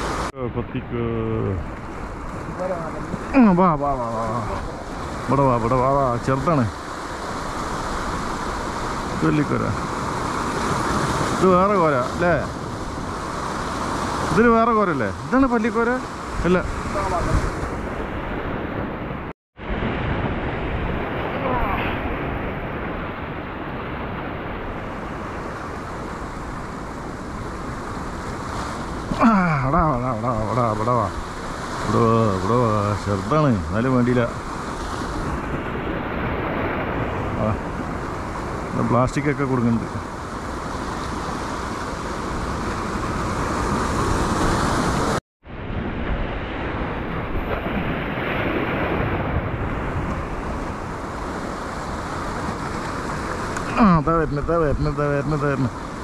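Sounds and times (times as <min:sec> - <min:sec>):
wind on microphone: 0:00.0 - 0:03.4, 0:16.1 - 0:29.2
man speaking: 0:00.4 - 0:01.6, 0:02.6 - 0:06.7, 0:29.2 - 0:31.1, 0:31.9 - 0:34.4, 0:37.4 - 0:37.6, 0:38.8 - 0:40.0, 0:53.6 - 0:55.7
surf breaking over rocks: 0:00.9 - 0:56.0.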